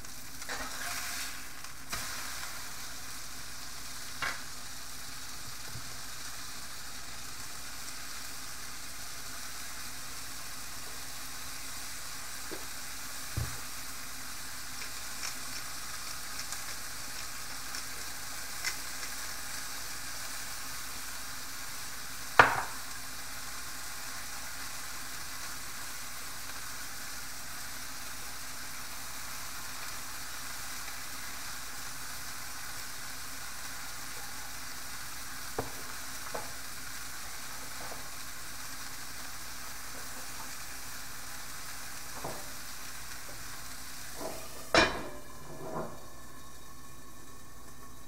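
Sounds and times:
food sizzling in a skillet: 0.0s - 48.0s
lid clattering on skillet: 44.2s - 46.2s.

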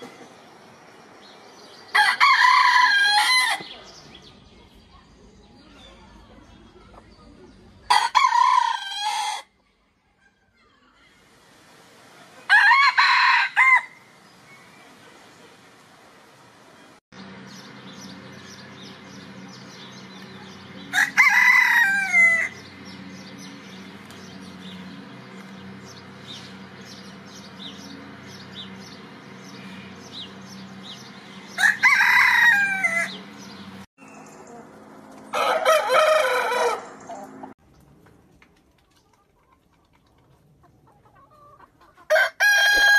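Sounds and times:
roosters crowing: 1.9s - 4.0s, 7.8s - 9.5s, 12.4s - 14.2s, 20.5s - 33.8s, 35.3s - 37.6s, 41.3s - 42.9s.

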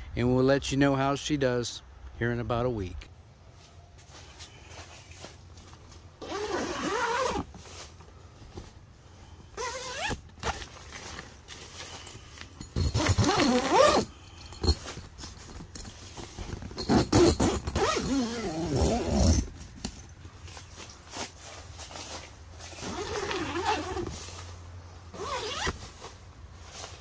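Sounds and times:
tent fabric handling: 3.5s - 14.2s, 14.8s - 27.0s
tent zipper being pulled: 6.2s - 8.0s, 9.5s - 11.2s, 12.9s - 14.1s, 16.2s - 19.6s, 21.2s - 24.5s, 25.1s - 26.1s.

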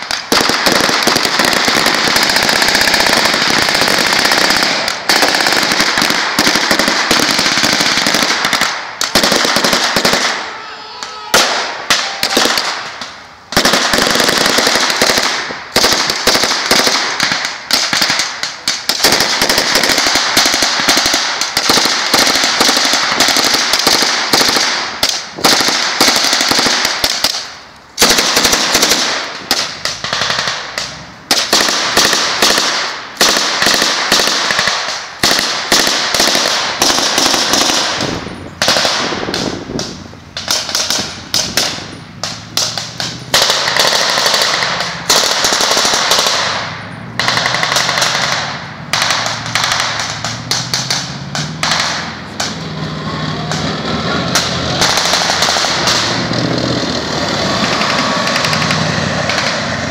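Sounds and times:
machine gun bursts: 0.0s - 10.5s, 11.4s - 13.0s, 13.6s - 27.4s, 28.0s - 30.7s, 42.6s - 52.6s, 53.6s - 59.9s
rifle shots: 0.0s - 10.6s, 11.3s - 59.9s.

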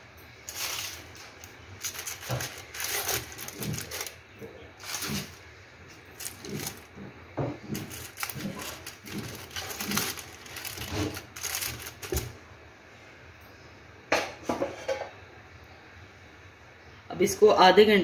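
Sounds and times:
aluminium foil crinkling: 0.4s - 6.9s, 7.6s - 12.4s.

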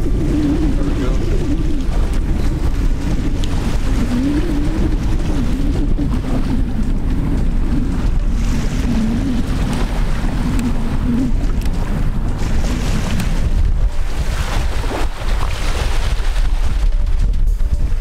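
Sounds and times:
low moaning tone: 0.0s - 14.0s
surf: 0.0s - 18.0s
wind buffeting microphone: 0.0s - 18.0s.

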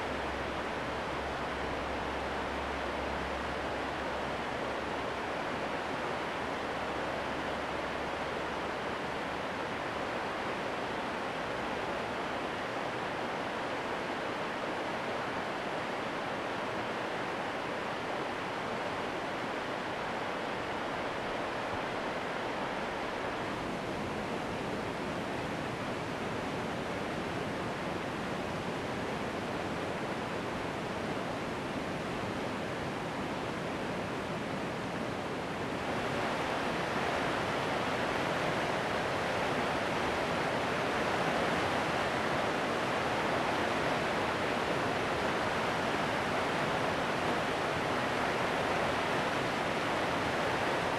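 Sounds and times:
river rapids rushing over rocks: 29.6s - 50.9s.

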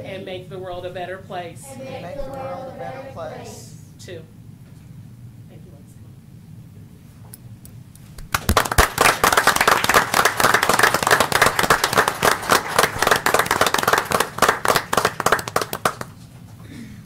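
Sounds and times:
small group applauding: 8.2s - 16.3s.

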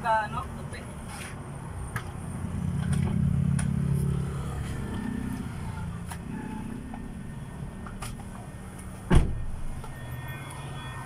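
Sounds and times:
vehicle passing: 1.7s - 7.8s.

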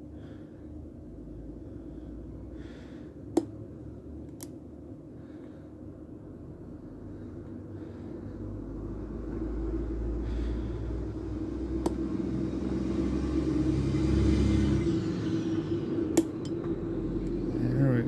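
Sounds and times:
low hum: 0.0s - 18.0s
passing road vehicle rumble: 6.9s - 18.0s.

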